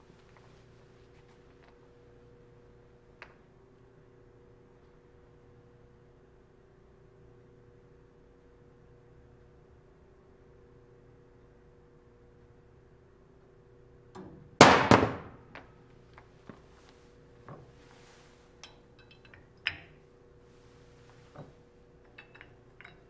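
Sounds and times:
metal masses clinking: 18.6 - 19.9, 22.0 - 23.0.

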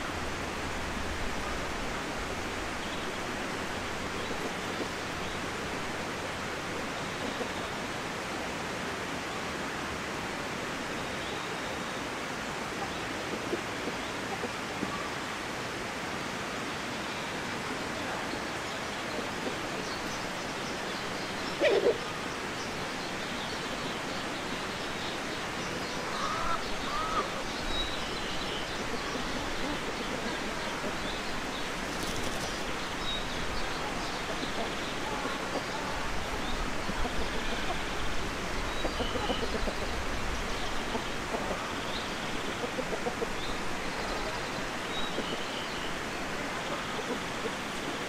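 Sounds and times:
steady hiss: 0.0 - 48.0
small birds chirping: 18.1 - 48.0
chicken call: 26.0 - 27.3.

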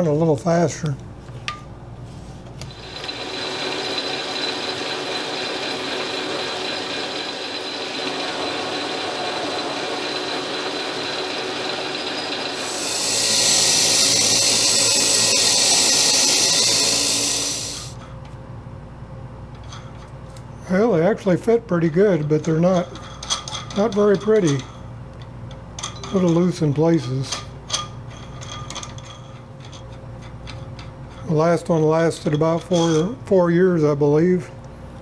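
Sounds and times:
metal lathe running: 2.7 - 18.0
hissing cutting noise: 7.5 - 18.0.

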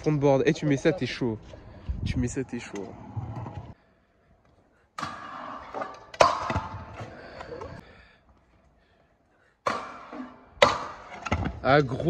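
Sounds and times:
scooter hitting obstacle: 5.0 - 7.7, 9.6 - 11.7
scooter wheels rolling: 5.0 - 7.8.

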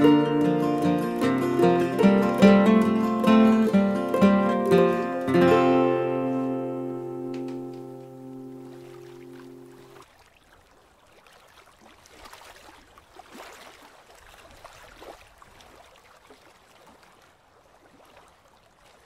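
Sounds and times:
water lapping against boat hull: 7.2 - 19.0.

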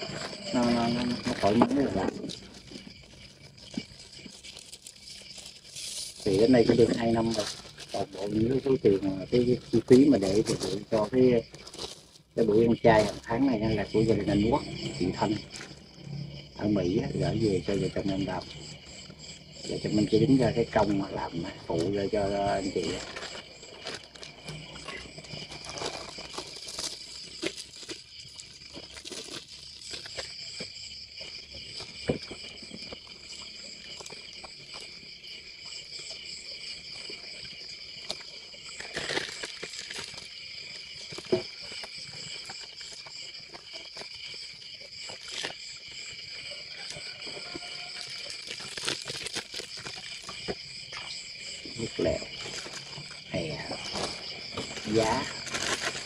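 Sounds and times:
insect chorus chirring: 0.0 - 56.0
plastic bags crinkling: 2.2 - 9.0, 9.6 - 12.4, 22.9 - 30.2, 53.8 - 56.0.

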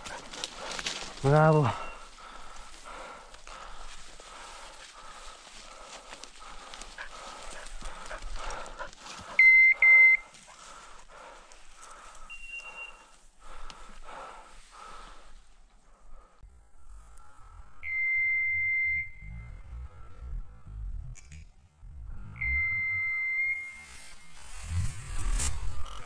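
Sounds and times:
footsteps through dry leaves: 0.0 - 9.3
long steady beep: 1.7 - 2.1, 9.3 - 10.4, 12.2 - 13.2, 17.8 - 19.8, 22.2 - 24.4
short electronic beeps: 9.4 - 10.3, 12.3 - 13.0, 17.9 - 19.7, 22.2 - 24.4.

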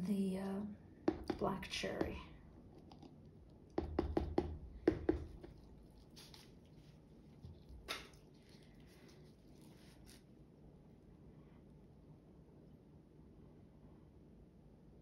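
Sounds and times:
plastic cup knocking on canvas: 1.1 - 2.2, 3.7 - 5.6.

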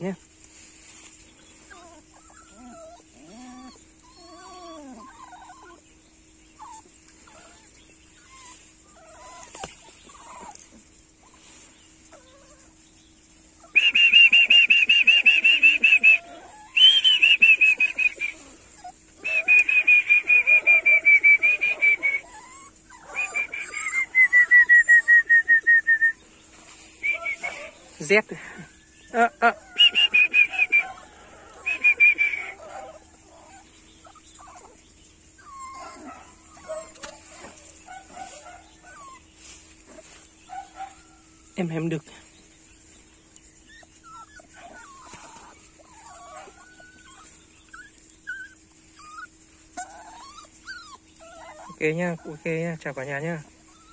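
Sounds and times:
faint high animal squeaks: 1.7 - 5.8, 6.6 - 10.6, 13.6 - 25.2, 28.9 - 39.3, 43.5 - 53.9
rapidly pulsing high-pitched calls: 6.6 - 28.0, 28.9 - 41.7.

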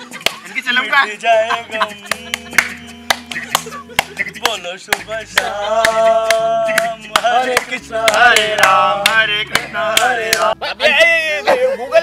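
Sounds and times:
men singing together: 0.0 - 12.0
hand claps: 0.2 - 0.5, 2.1 - 10.6.

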